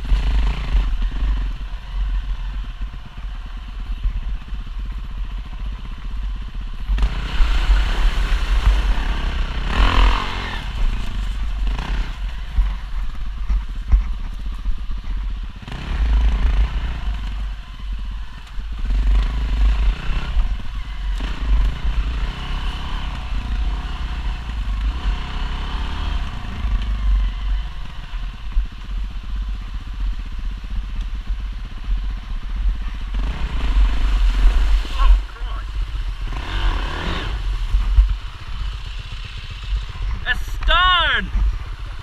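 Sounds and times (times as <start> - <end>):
dirt bike engine revving: 0.0 - 2.5, 6.8 - 13.7, 15.6 - 28.2, 32.8 - 42.0.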